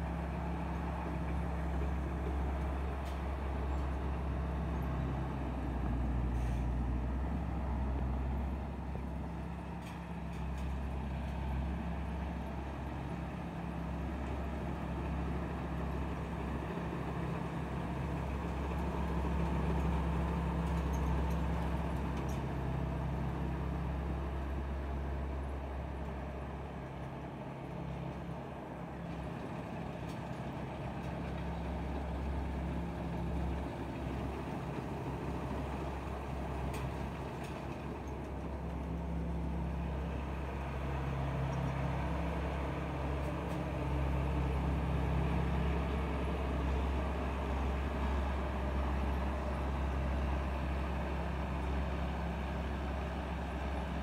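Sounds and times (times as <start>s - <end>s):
combine harvester diesel engine: 0.0s - 54.0s
harvesting machinery: 0.0s - 54.0s.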